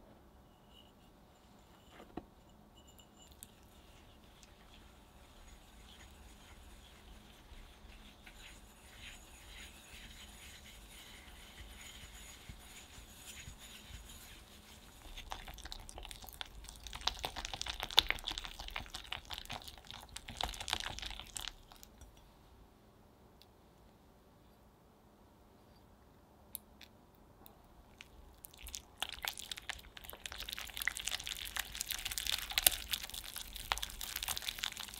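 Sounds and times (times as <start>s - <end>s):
whisk scraping and clicking in bowl: 2.8s - 22.1s, 29.7s - 34.9s.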